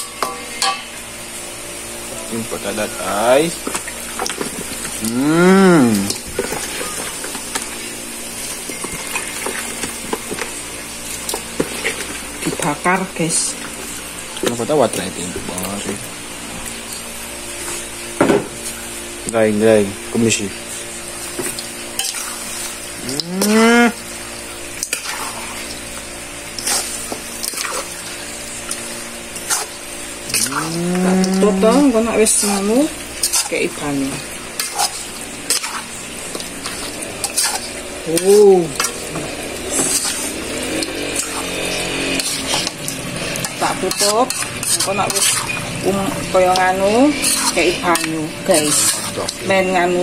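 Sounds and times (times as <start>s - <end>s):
water sloshing and dripping: 24.2s - 49.6s
small clicks and splashes: 24.7s - 31.5s, 34.6s - 45.8s
mooing call: 30.4s - 31.6s
metal spatula scraping a wok: 37.2s - 40.5s, 41.1s - 49.3s.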